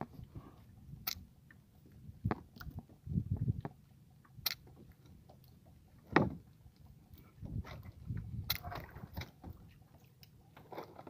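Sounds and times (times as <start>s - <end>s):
sharp clicks: 1.0s - 1.3s, 4.4s - 4.7s, 8.4s - 8.7s.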